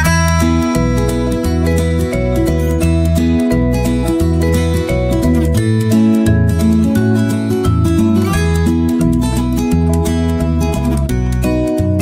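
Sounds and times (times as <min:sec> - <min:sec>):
low bass line: 0:00.0 - 0:12.0
plucked acoustic guitar music: 0:00.0 - 0:12.0.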